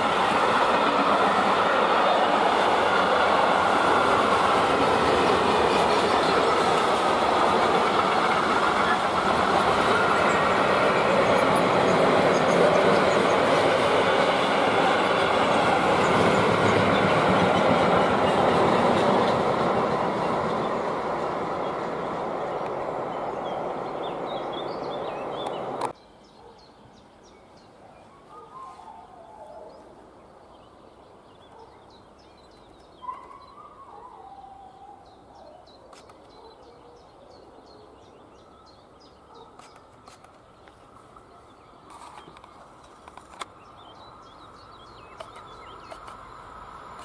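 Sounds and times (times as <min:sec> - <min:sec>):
train rolling: 0:00.0 - 0:26.0, 0:39.7 - 0:47.0
distant train approaching: 0:00.0 - 0:26.3, 0:37.2 - 0:47.0
birds singing: 0:08.0 - 0:46.4.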